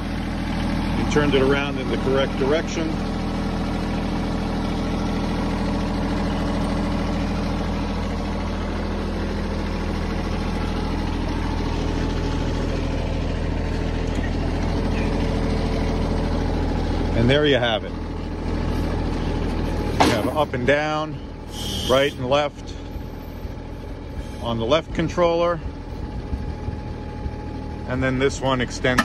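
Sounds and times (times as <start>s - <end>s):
tractor diesel engine idling: 0.0s - 29.0s.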